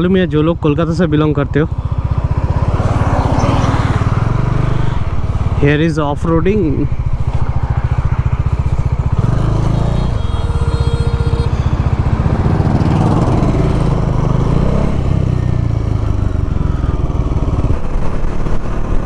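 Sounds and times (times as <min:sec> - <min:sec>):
motorcycle engine revving: 0:00.8 - 0:19.0.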